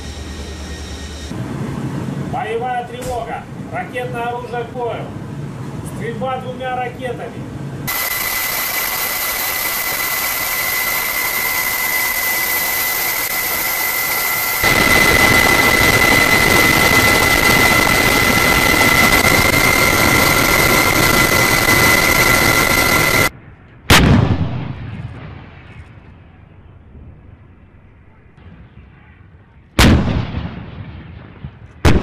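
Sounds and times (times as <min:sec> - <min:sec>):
loud roar with high whine: 0:00.0 - 0:02.6, 0:07.4 - 0:23.4
artillery gun blast: 0:23.9 - 0:26.1, 0:29.8 - 0:32.0.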